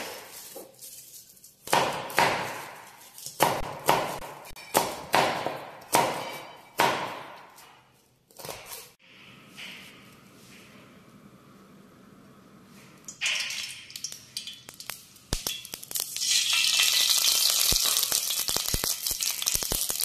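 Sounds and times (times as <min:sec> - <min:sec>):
knife chopping on cutting board: 0:01.7 - 0:08.9.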